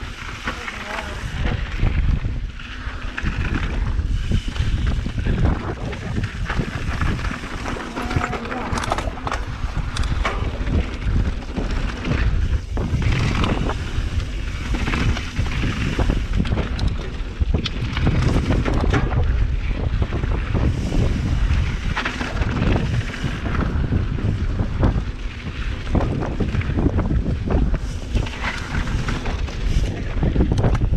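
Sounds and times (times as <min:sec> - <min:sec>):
bike knocking and rattling: 0:00.0 - 0:30.9
wind buffeting microphone: 0:00.0 - 0:30.9.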